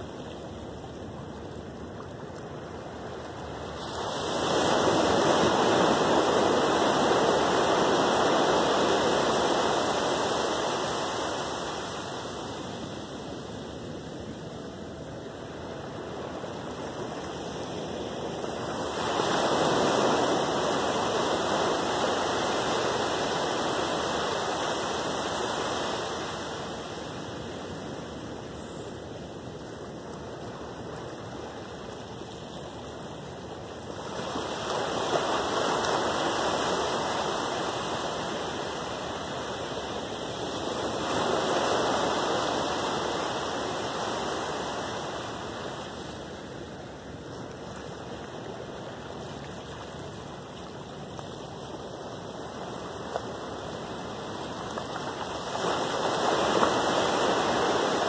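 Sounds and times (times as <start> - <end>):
ocean waves breaking on beach: 0.0 - 58.0.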